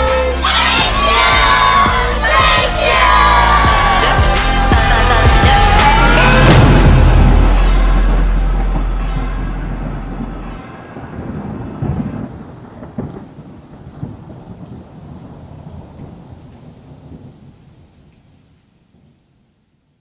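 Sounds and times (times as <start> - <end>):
thunder cracks: 1.3 - 17.6
rolling thunder: 2.4 - 18.1
steady rain: 2.7 - 20.0.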